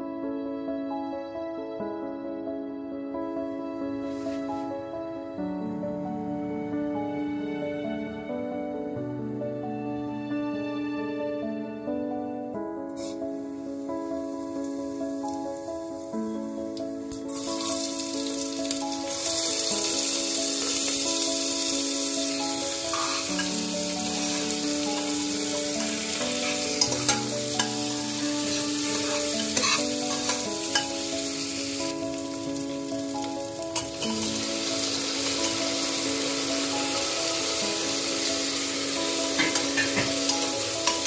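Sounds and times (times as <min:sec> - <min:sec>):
background music: 0:00.0 - 0:41.0
onions sizzling in hot oil: 0:13.0 - 0:16.1, 0:17.2 - 0:41.0.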